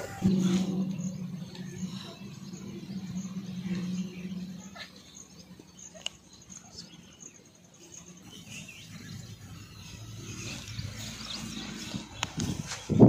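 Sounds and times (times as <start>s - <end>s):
low rumble: 0.0s - 6.9s
birds chirping: 0.0s - 13.0s.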